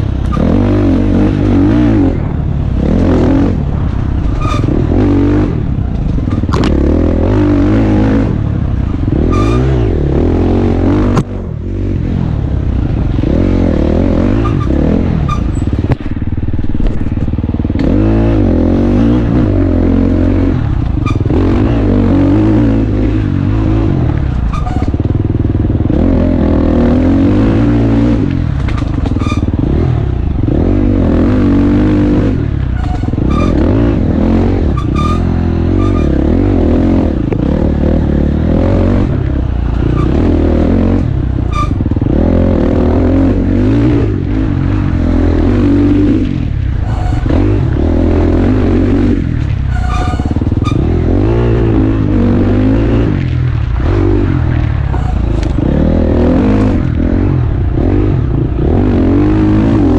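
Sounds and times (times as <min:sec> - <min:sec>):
dirt bike engine revving: 0:00.0 - 0:59.9
sharp clicks and knocks: 0:05.9 - 0:06.8, 0:28.5 - 0:29.5.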